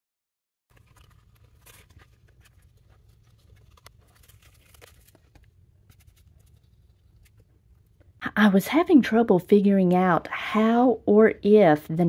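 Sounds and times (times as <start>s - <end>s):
clicks and rustles of handling: 0.7s - 8.2s
low steady hum: 0.7s - 12.0s.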